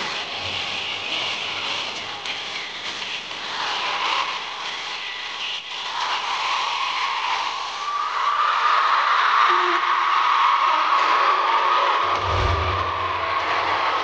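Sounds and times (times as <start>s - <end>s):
crowd screaming and cheering: 3.0s - 14.0s
stage music: 12.1s - 14.0s.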